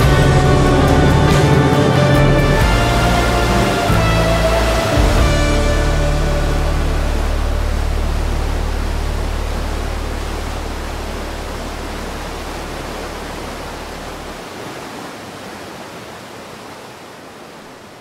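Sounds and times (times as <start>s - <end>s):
deep low hum: 0.0s - 14.4s
steady noise wash: 0.0s - 18.0s.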